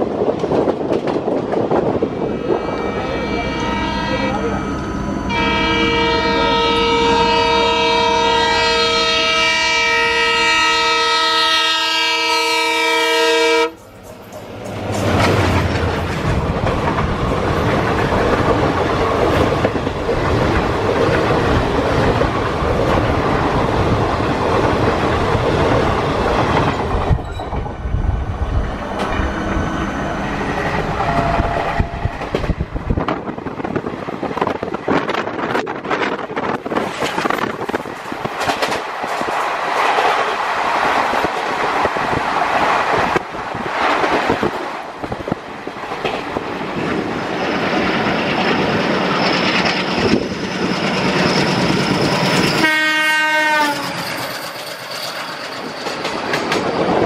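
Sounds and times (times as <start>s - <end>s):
train rushing past: 0.0s - 57.0s
locomotive horn blast: 2.3s - 4.7s, 5.3s - 13.8s, 52.5s - 54.0s
wheels clattering over rail joints: 13.9s - 28.0s, 53.8s - 57.0s.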